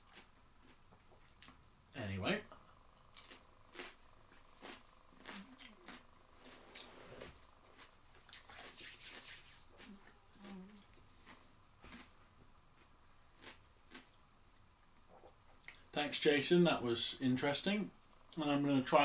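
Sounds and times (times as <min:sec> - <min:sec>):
soft mouth sounds: 0:02.5 - 0:12.1, 0:15.0 - 0:15.8
hands rubbing together: 0:08.4 - 0:09.9.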